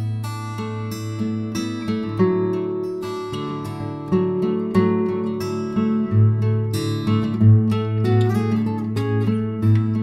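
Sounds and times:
acoustic guitar plucked notes: 0:00.0 - 0:10.0.

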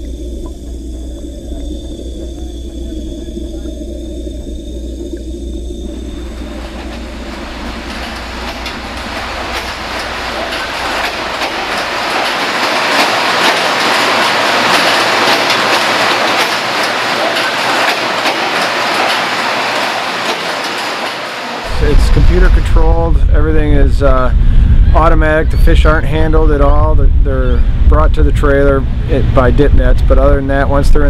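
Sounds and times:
machinery clattering with rapid clicks: 0:00.0 - 0:23.9
dense rushing noise: 0:00.0 - 0:31.0.

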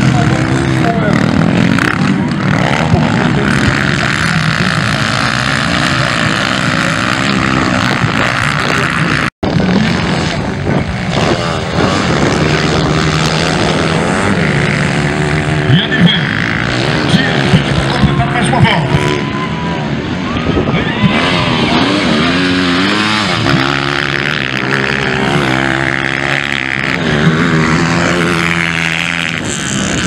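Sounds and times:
dirt bike engines revving: 0:00.0 - 0:30.0.

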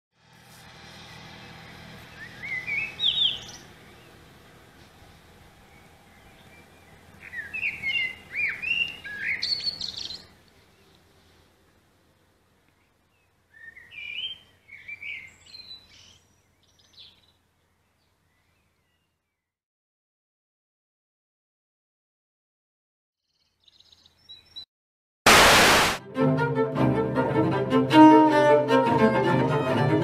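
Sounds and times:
small birds chirping: 0:01.0 - 0:11.4, 0:12.6 - 0:19.5, 0:23.2 - 0:24.7.

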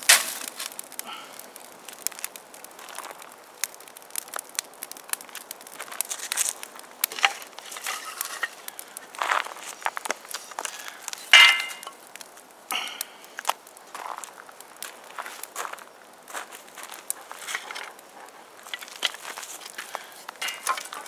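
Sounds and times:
dry sticks clattering: 0:00.0 - 0:01.2, 0:05.3 - 0:13.6, 0:16.9 - 0:21.0
kindling fire crackling: 0:00.0 - 0:21.0.

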